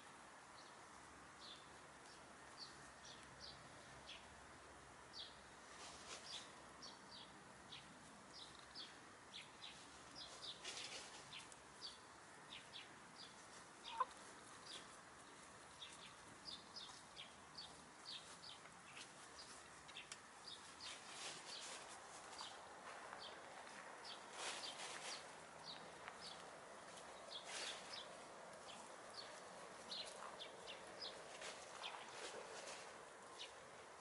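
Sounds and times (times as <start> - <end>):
hen clucking: 13.8 - 14.2.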